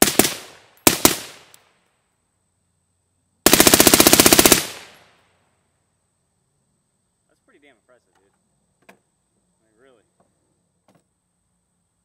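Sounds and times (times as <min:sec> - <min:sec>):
automatic gunfire burst: 0:00.0 - 0:01.4, 0:03.4 - 0:05.0
suppressed rifle shots: 0:00.0 - 0:01.6.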